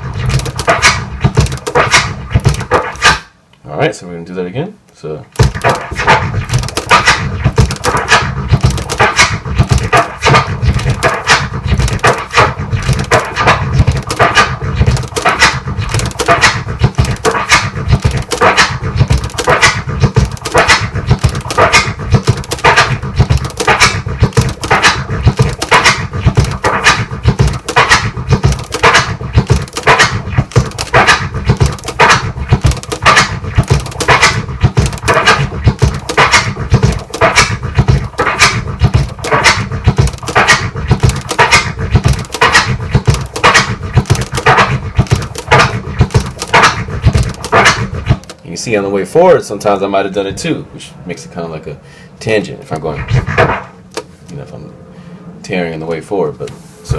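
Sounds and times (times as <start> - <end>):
turntable scratching drum sample: 0.0 - 3.3, 5.4 - 48.4, 52.7 - 53.7
crossfader clicks: 5.4 - 37.5, 38.2 - 48.4.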